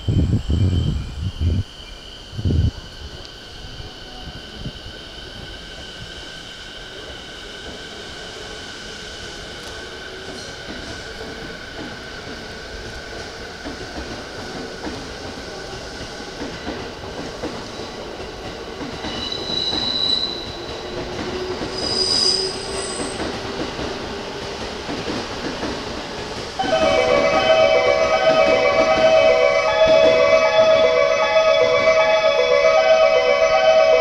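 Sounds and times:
electric train rumbling: 0.0 - 34.0
train wheels squealing: 18.9 - 24.4
platform melody: 26.6 - 34.0.

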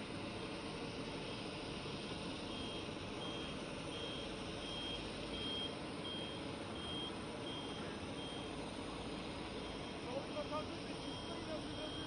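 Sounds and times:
low engine rumble: 0.0 - 12.0
forklift warning beeps: 2.5 - 12.0.

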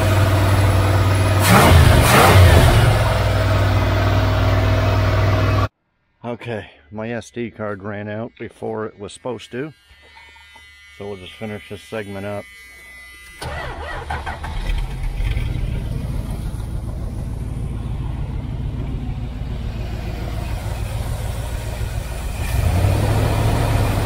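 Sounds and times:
car engine starting and running: 0.0 - 5.7, 13.4 - 24.0.

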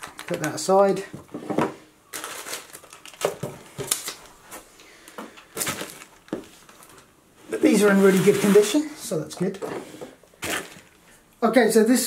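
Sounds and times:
plastic bag crinkling: 0.0 - 1.0, 2.1 - 8.9, 10.3 - 11.2.

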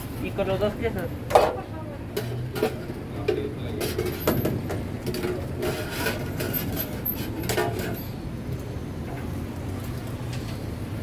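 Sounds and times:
metal utensils clinking on pot: 1.4 - 8.1.

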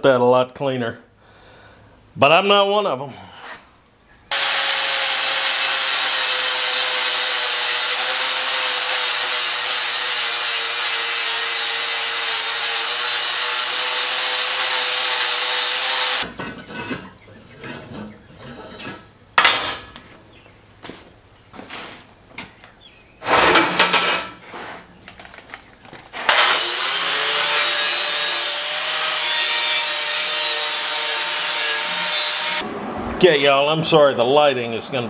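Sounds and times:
angle grinder grinding steel: 4.3 - 16.3, 26.2 - 32.6
tool being put down: 19.4 - 20.0, 23.4 - 24.4.

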